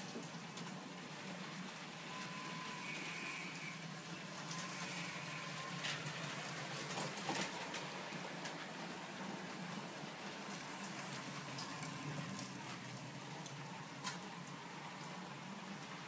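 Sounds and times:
thin whine: 2.0 - 6.1.

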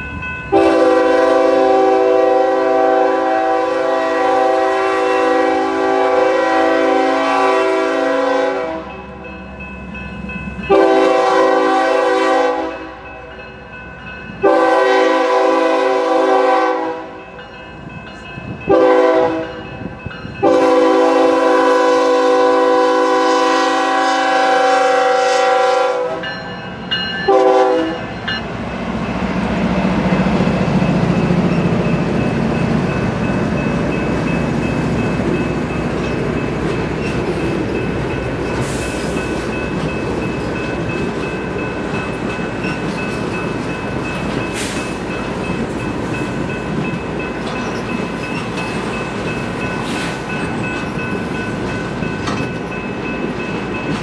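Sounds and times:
train rumbling past: 0.0 - 54.0
locomotive air horn blasts: 0.5 - 9.0, 10.7 - 13.0, 14.4 - 17.2, 18.7 - 19.7, 20.4 - 26.4, 27.3 - 28.2.

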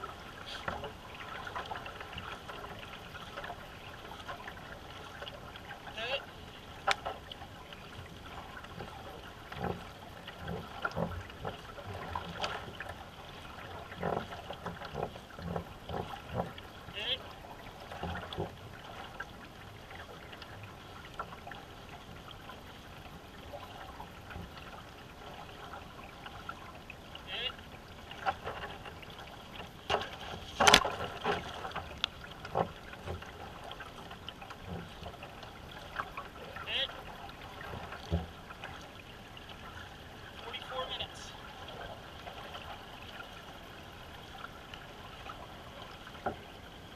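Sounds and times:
paddle strokes splashing water: 0.0 - 46.9.

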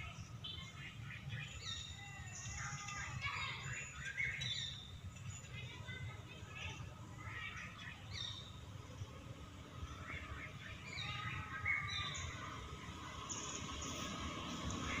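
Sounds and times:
birds chirping and whistling: 0.0 - 5.8, 7.4 - 8.6, 9.8 - 12.5
low outdoor rumble: 0.0 - 15.0.

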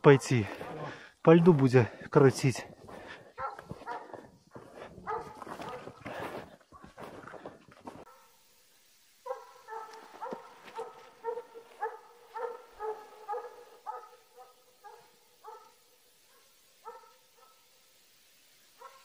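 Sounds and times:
hound baying: 3.4 - 6.0, 9.3 - 17.7.

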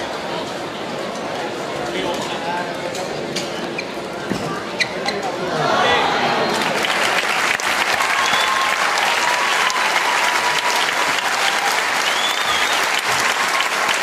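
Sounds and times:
crowd applauding: 6.5 - 14.0
faint whistle-like tone: 12.0 - 12.8.

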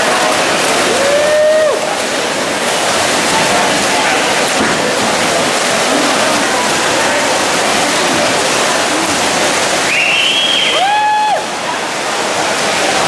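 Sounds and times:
spectators cheering: 0.0 - 2.2, 8.8 - 11.7
swimmers splashing: 0.0 - 13.0.

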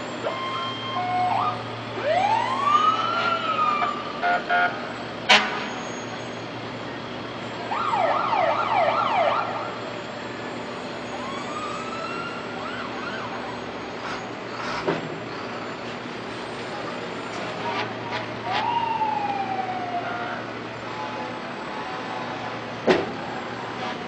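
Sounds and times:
fire truck siren: 0.0 - 14.4, 15.5 - 24.0
horn blasts: 4.2 - 6.0.

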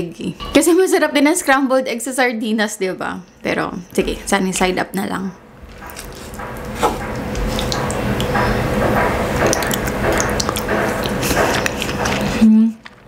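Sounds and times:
wet squishing of food mixing: 5.6 - 13.0
utensil clicks and scrapes: 9.4 - 13.0.

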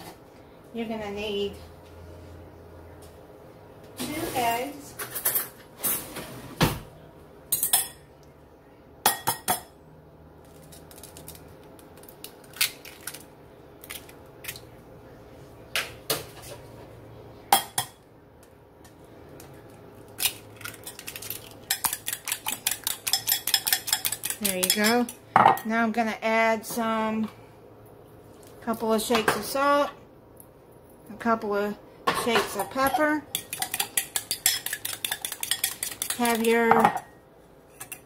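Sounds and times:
eggs cracking on bowl: 19.4 - 25.2, 33.4 - 36.8
fork whisking eggs: 20.3 - 25.2, 33.3 - 36.7.

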